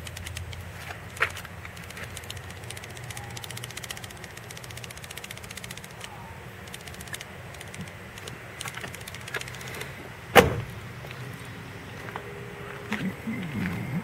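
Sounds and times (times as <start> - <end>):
faint rapid ticking: 0.0 - 10.0
steady low hum: 0.0 - 14.0
car door shutting: 10.3 - 10.8.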